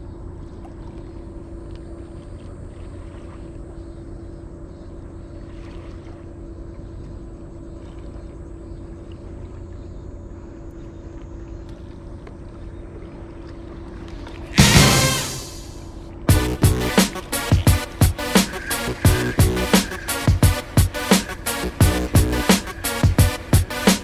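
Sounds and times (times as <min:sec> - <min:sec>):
motor droning hum: 0:00.0 - 0:24.0
loud burst of music: 0:14.6 - 0:24.0.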